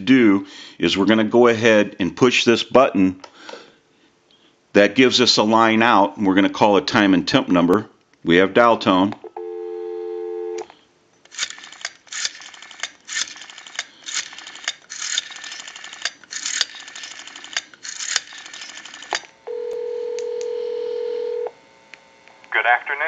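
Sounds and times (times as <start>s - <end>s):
telephone ringback tone: 9.4s - 10.6s, 19.5s - 21.5s
telephone dial tone: 9.4s - 10.7s, 18.3s - 21.5s
rotary dial clicking pulses: 11.3s - 19.4s.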